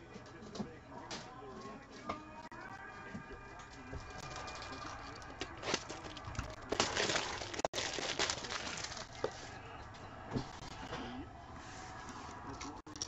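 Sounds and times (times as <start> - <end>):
packaging rustling and crinkling: 4.2 - 9.5.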